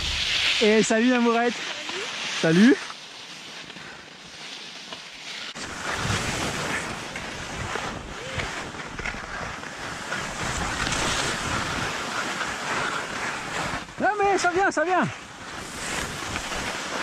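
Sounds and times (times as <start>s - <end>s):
wind rushing over microphone: 0.0s - 1.0s
skis hissing over snow: 0.0s - 17.0s.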